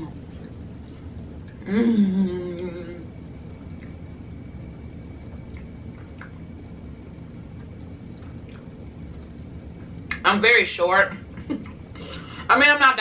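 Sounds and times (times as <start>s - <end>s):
low room hum: 0.0s - 13.0s
person humming: 1.6s - 3.1s
person chewing food: 7.4s - 9.9s.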